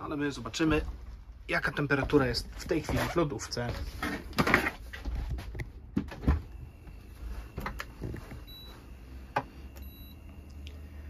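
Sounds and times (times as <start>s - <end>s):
steady low hum: 0.0s - 11.0s
short high beep: 9.8s - 10.2s.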